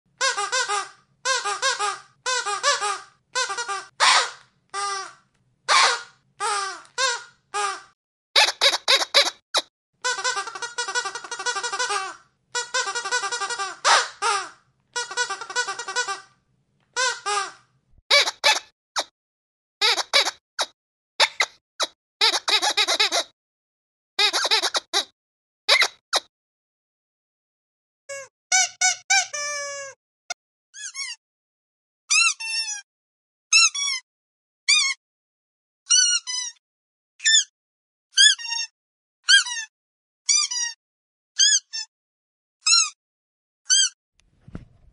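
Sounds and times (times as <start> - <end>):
squeaky dog toy squeaking: 0.2 - 7.8, 8.4 - 16.3, 17.0 - 19.1, 19.8 - 23.3, 24.2 - 25.1, 25.7 - 26.3, 28.1 - 30.0, 30.8 - 31.2, 32.1 - 32.8, 33.5 - 34.0, 34.7 - 35.0, 35.9 - 36.6, 37.2 - 37.5, 38.1 - 40.8, 41.4 - 41.9, 42.6 - 43.0, 43.7 - 44.0.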